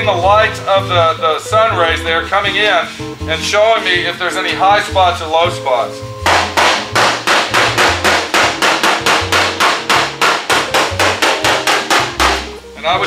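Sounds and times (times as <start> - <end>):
hammer tapping on steel panel: 6.2 - 12.6.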